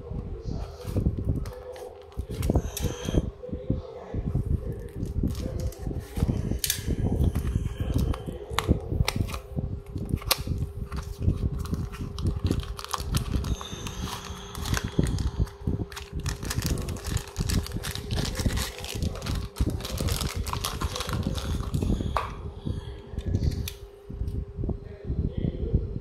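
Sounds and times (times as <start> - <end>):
steady low hum: 0.0 - 26.0
tape peeling: 10.0 - 21.9
plastic bag crinkling: 10.1 - 22.0.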